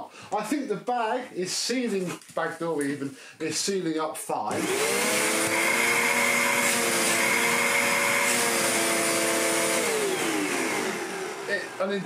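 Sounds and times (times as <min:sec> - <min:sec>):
vacuum cleaner motor whine: 0:04.5 - 0:12.0.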